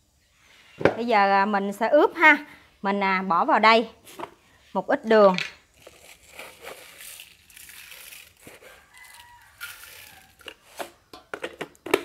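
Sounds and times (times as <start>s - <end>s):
plastic bag crinkling: 5.7s - 10.7s
faint rooster crowing: 8.4s - 10.6s.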